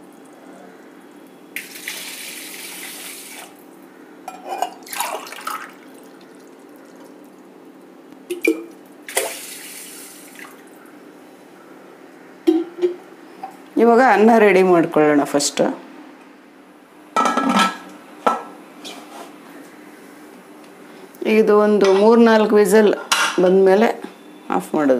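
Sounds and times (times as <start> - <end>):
water pouring into bowl of rice: 1.6 - 3.6, 4.8 - 6.6
water pouring into metal cup: 1.6 - 3.6, 4.8 - 7.1.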